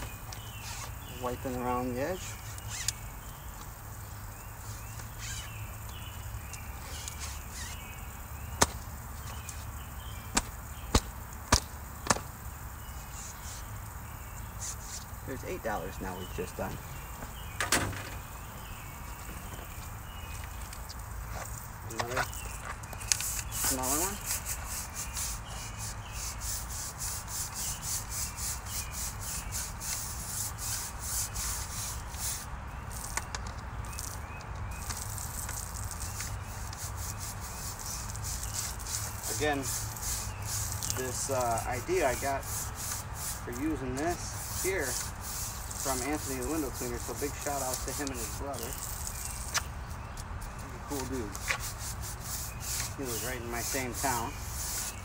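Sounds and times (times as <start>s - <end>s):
brush scrubbing window screen: 0.0s - 8.0s, 12.8s - 17.4s, 18.4s - 33.3s, 33.9s - 55.0s
water spraying: 0.0s - 55.0s
sharp knocks of screen frame: 8.6s - 8.8s, 10.3s - 12.3s, 17.6s - 18.3s.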